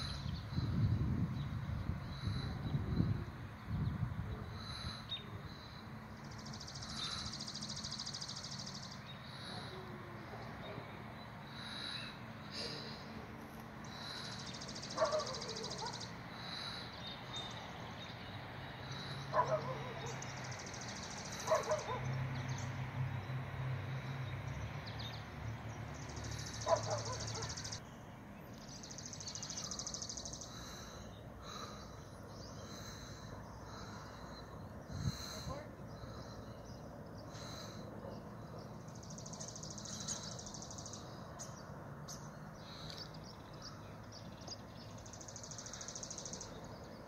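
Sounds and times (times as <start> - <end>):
high buzzing bird trill: 13.8 - 18.2, 26.0 - 27.8.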